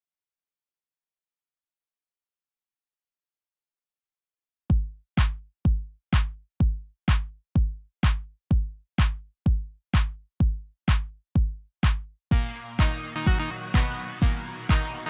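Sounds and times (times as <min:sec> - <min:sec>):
electronic music with kick drum: 0:04.7 - 0:15.0.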